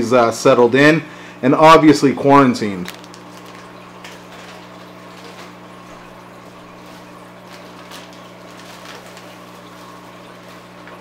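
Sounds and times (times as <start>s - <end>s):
low electric hum: 0.0s - 11.0s
rustling of bags and packing: 2.8s - 5.6s, 6.8s - 10.6s.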